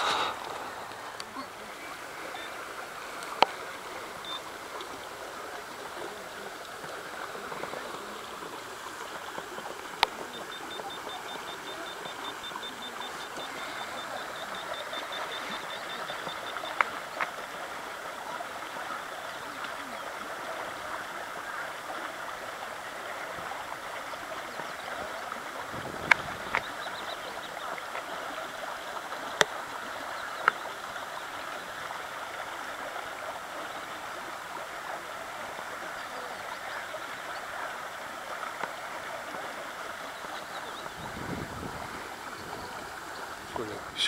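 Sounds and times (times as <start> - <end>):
outdoor background hiss: 0.0 - 10.3.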